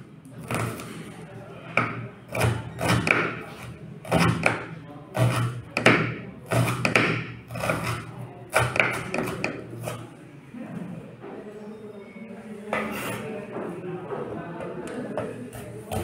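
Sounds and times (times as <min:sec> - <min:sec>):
knife slicing on wooden board: 0:06.5 - 0:10.0.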